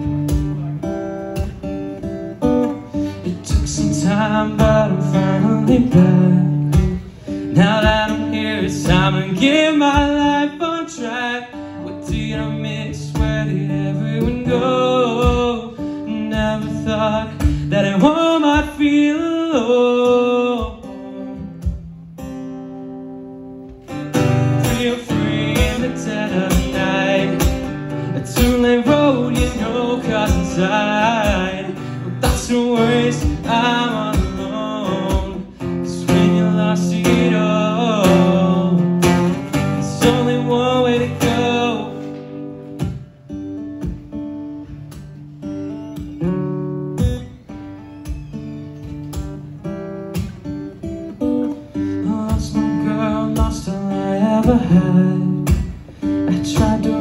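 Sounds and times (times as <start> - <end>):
acoustic guitar strummed and picked: 0.0 - 57.0.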